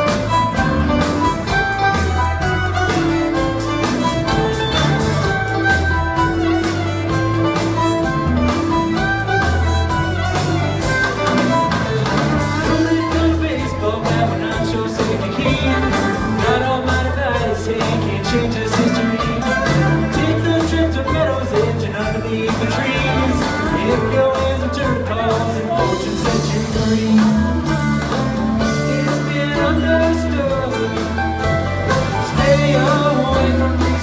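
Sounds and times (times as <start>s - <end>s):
live string band with drums: 0.0s - 34.0s
person singing: 0.0s - 34.0s.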